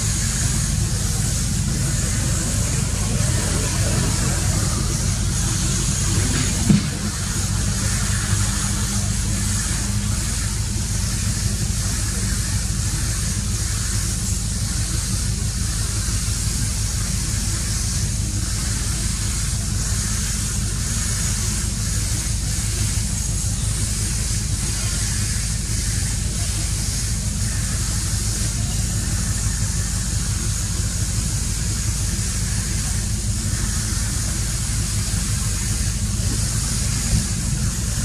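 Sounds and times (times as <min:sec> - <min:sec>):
low rumble: 0:00.0 - 0:10.1
high hiss: 0:00.0 - 0:38.0
brief knock: 0:06.6 - 0:07.2.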